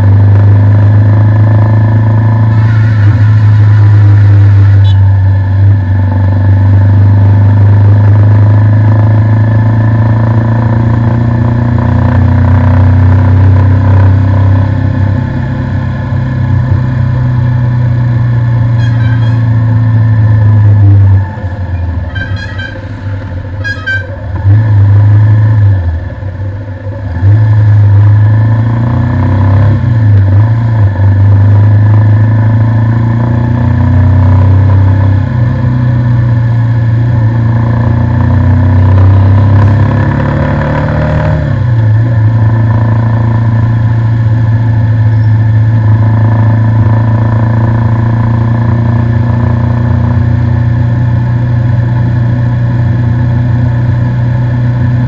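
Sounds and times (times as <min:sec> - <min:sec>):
motorcycle engine running: 0:00.0 - 0:55.0
vehicle horn toots: 0:02.5 - 0:05.1, 0:18.7 - 0:19.7, 0:22.0 - 0:24.3.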